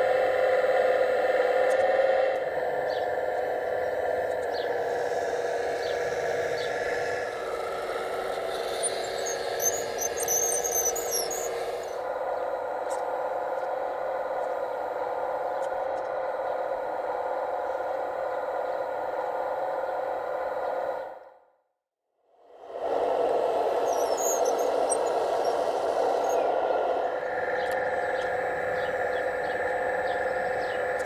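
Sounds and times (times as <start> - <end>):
hydraulic pump electric whine: 0.0 - 21.3.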